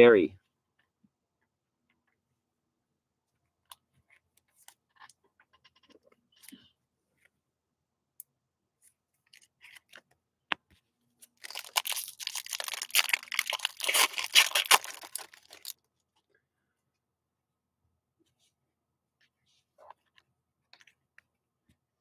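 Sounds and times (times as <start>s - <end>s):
foil wrapper tearing and crinkling: 11.4s - 15.7s.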